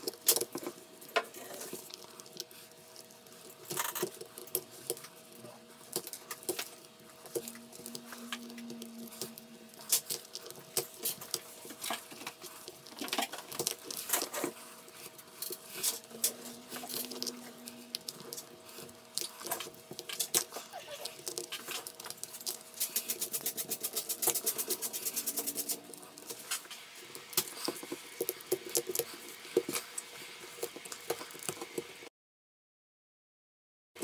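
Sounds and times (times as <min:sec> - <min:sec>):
small tools clicking and scraping: 0:00.0 - 0:32.0.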